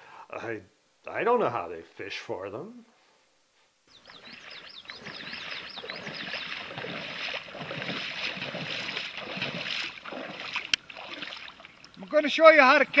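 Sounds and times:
high chirps: 0:03.9 - 0:07.4
water sloshing and splashing: 0:04.0 - 0:12.1.

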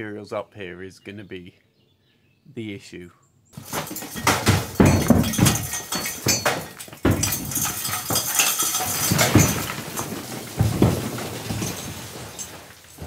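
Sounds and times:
bricks and rubble clattering: 0:03.6 - 0:13.0.

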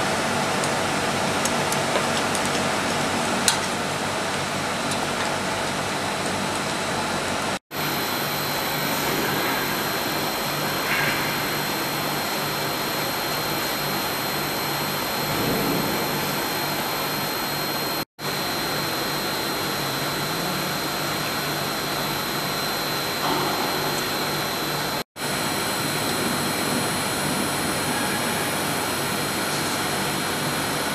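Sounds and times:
extruder machine running: 0:00.0 - 0:30.9
faint high whine: 0:07.8 - 0:30.9.

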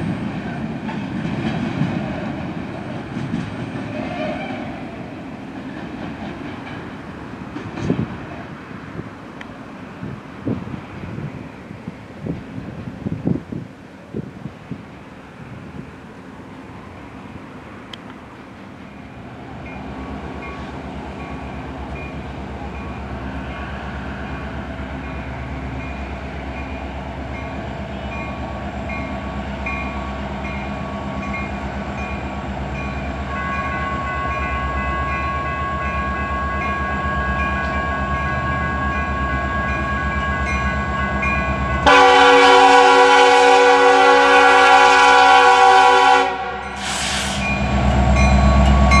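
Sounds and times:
locomotive rumble: 0:00.0 - 0:49.0
locomotive horn blasts: 0:03.9 - 0:04.8, 0:33.3 - 0:38.3, 0:41.7 - 0:47.5.

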